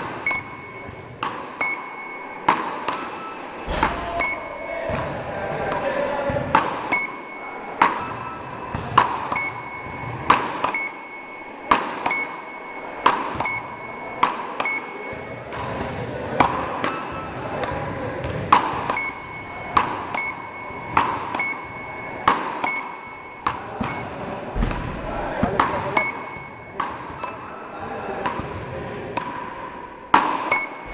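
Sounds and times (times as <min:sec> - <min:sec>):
paddles hitting a ball: 0:00.0 - 0:07.1, 0:07.8 - 0:10.9, 0:11.7 - 0:12.3, 0:13.0 - 0:27.4, 0:28.2 - 0:30.9
short electronic beeps: 0:00.1 - 0:04.8, 0:06.8 - 0:15.5, 0:16.8 - 0:17.4, 0:18.9 - 0:24.2, 0:26.0 - 0:27.6, 0:30.4 - 0:30.9.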